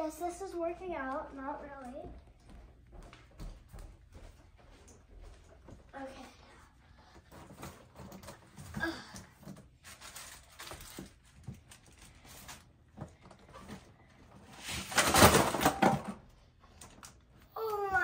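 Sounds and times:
paper bag rustling: 9.7s - 12.8s.

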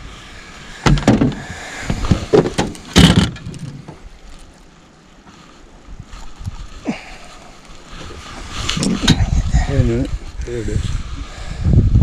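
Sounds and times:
sharp knocks and thumps: 0.8s - 4.0s.

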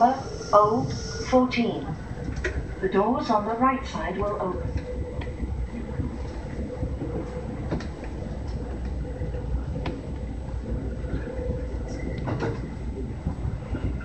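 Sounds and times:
steady hum: 0.0s - 14.0s
train wheels rumbling on rail: 0.0s - 14.0s.

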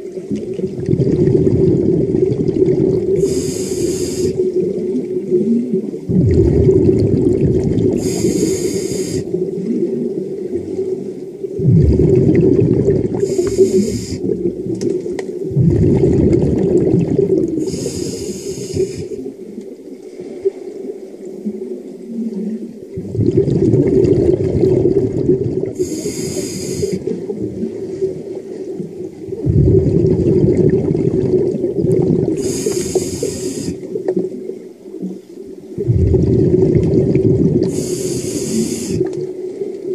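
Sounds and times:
rumbling water movement: 0.0s - 39.9s
snorkeler breathing underwater: 2.6s - 4.7s, 6.1s - 9.5s, 11.6s - 14.7s, 15.4s - 19.3s, 23.0s - 28.3s, 29.3s - 34.0s, 35.8s - 39.2s.

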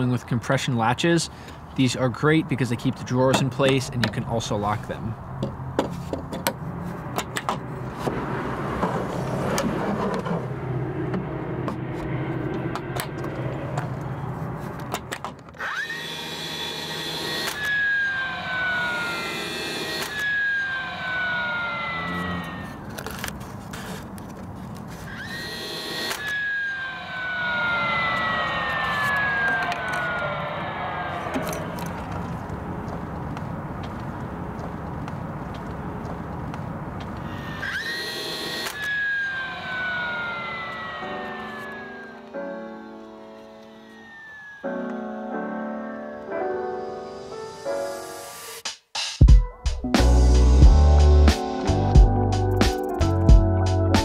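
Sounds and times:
tool and wood clicks and knocks: 5.4s - 8.2s
brad nailer motor whining: 7.2s - 24.0s, 24.9s - 33.0s, 37.2s - 45.9s.

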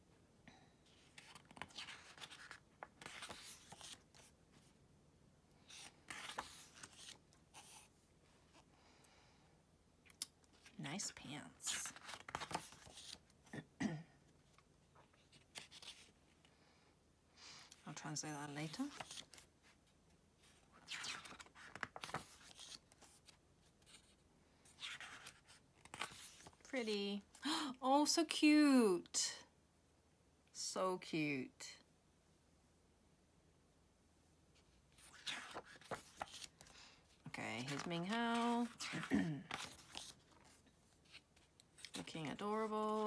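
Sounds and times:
glossy paper pages rustling: 0.9s - 4.8s, 5.6s - 8.6s, 10.5s - 13.4s, 14.5s - 16.4s, 17.8s - 27.2s, 34.6s - 43.0s.

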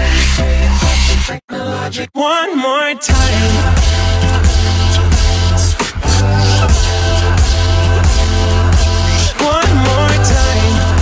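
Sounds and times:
electronic dance music: 0.0s - 1.4s, 3.1s - 11.0s.

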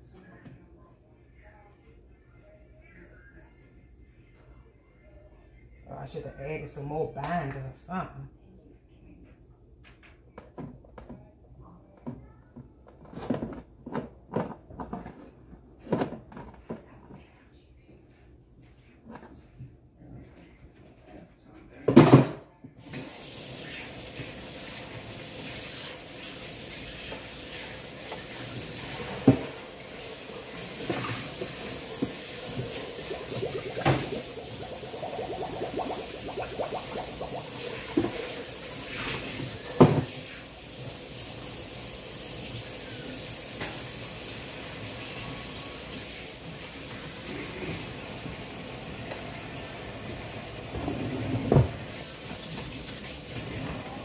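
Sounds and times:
tap running into sink: 28.1s - 40.4s.

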